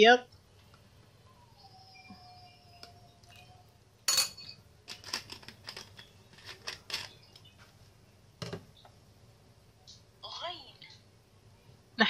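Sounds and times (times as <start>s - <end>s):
spoon clinking against glass bowl: 4.1s - 4.6s.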